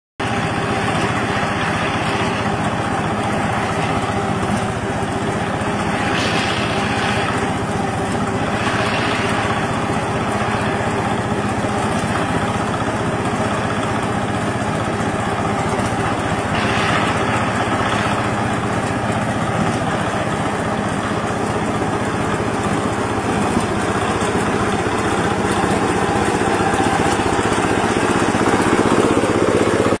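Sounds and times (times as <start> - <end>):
harvester engine humming: 0.2 - 30.0.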